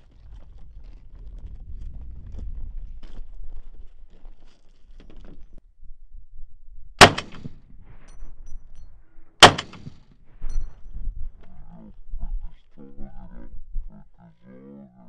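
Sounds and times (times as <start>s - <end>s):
rifle shots with echo: 7.0s - 7.6s, 9.4s - 10.0s.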